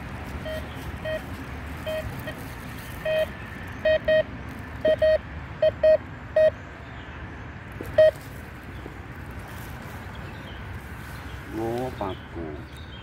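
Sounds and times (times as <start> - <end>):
metal detector beeps: 0.4 - 2.1, 3.0 - 6.6, 8.0 - 8.2.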